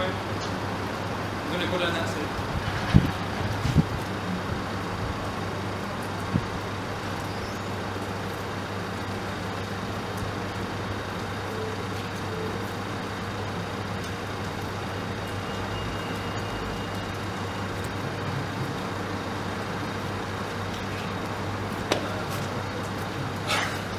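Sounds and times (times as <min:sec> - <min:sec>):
distant road traffic hum: 0:00.0 - 0:23.9.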